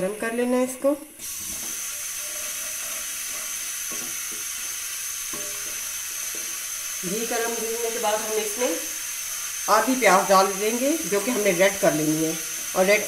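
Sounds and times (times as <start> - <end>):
ghee sizzling in a wok: 0.0 - 13.0
wooden spoon scraping: 1.2 - 7.0.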